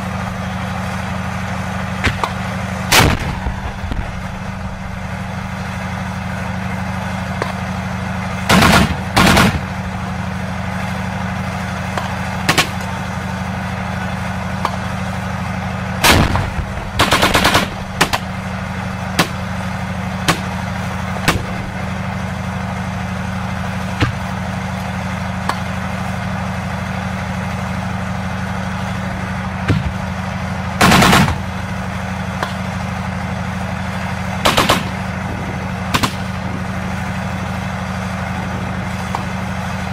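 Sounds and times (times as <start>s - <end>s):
tank engine idling: 0.0s - 39.9s
single gunshots: 2.9s - 3.6s, 16.0s - 18.2s
automatic gunfire bursts: 8.5s - 9.7s, 16.0s - 18.3s, 30.8s - 31.4s, 34.4s - 35.0s.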